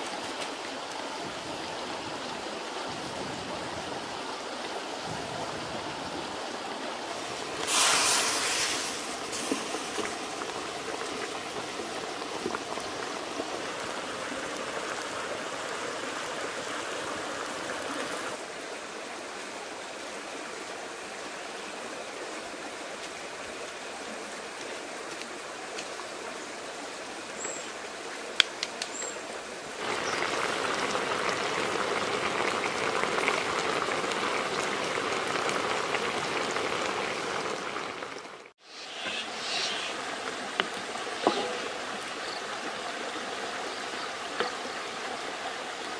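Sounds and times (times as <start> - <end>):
short loud hiss: 7.6 - 9.5, 38.6 - 40.1
sauce bubbling in a wok: 29.8 - 39.9.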